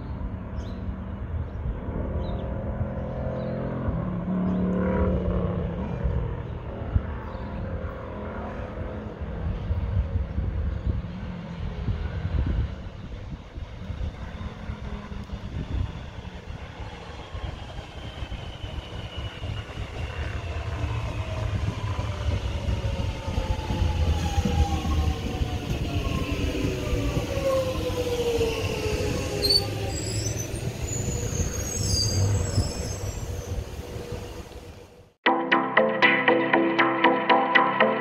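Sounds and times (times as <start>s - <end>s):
wheels rumbling on rail: 0.0s - 35.2s
brief high squeaks: 29.4s - 33.5s.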